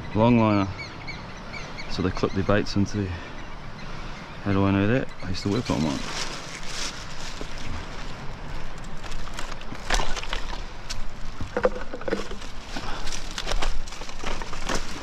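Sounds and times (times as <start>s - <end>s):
plastic bag rustling: 5.4s - 15.0s
stones and driftwood knocking: 8.8s - 15.0s.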